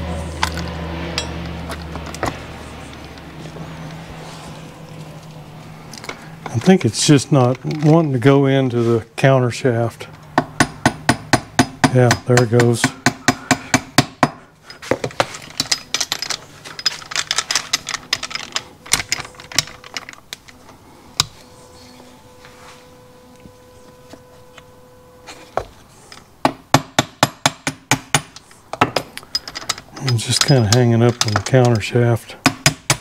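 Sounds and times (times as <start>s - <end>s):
steel gears clinking: 0.0s - 8.3s, 14.6s - 20.6s, 28.3s - 32.1s.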